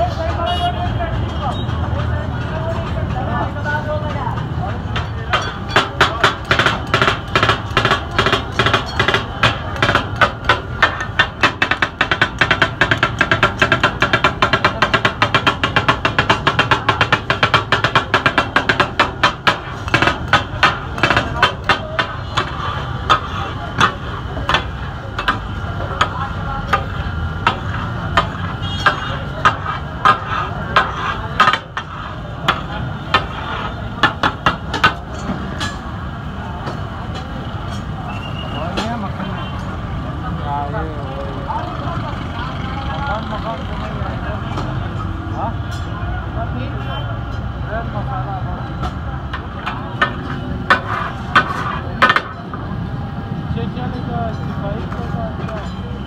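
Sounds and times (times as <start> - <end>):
steel blades chopping on metal griddle: 4.8 - 35.9, 49.5 - 52.4
metal blades clanking on griddle: 17.1 - 33.8.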